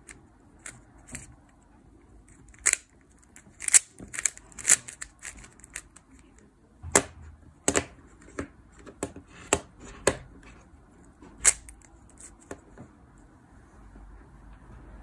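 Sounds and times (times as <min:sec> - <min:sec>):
speed cube clacking: 0:02.2 - 0:06.4, 0:11.4 - 0:12.6.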